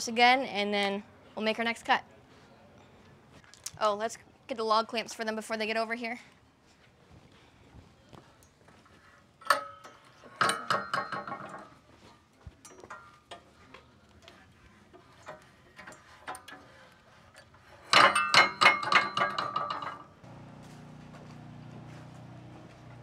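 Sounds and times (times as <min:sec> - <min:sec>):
steel clamps clanking and rattling: 0:09.4 - 0:11.8, 0:15.0 - 0:20.2.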